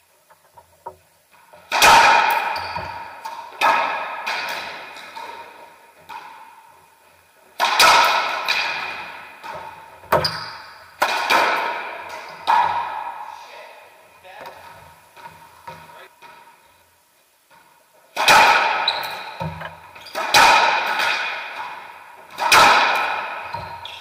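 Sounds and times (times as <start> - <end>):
racquetball hits echoing: 1.6 - 13.4, 18.1 - 24.0.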